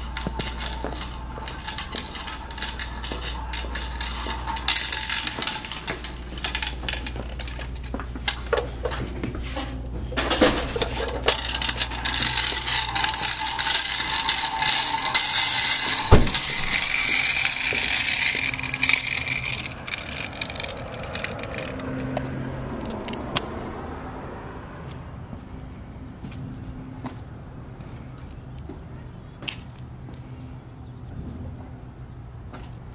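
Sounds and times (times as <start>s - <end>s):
toy car wheels clicking and rattling: 0.0s - 9.0s, 10.2s - 23.4s.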